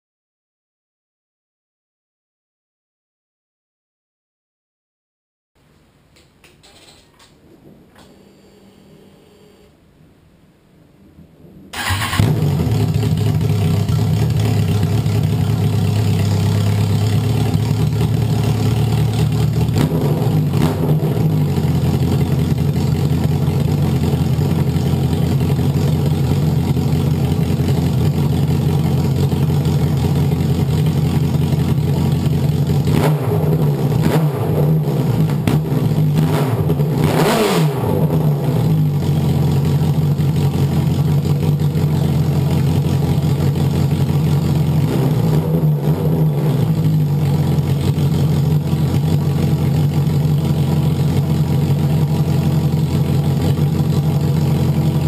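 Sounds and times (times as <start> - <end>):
motorcycle engine starting and idling: 11.7 - 55.0.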